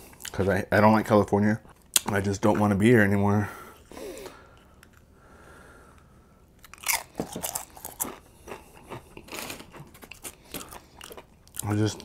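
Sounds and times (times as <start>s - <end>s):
chewing with crunchy bites: 6.6s - 12.0s.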